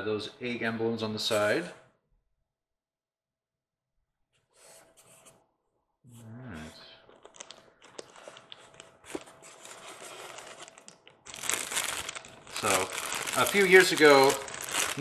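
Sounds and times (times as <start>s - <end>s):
plastic bag crinkling: 7.2s - 15.0s.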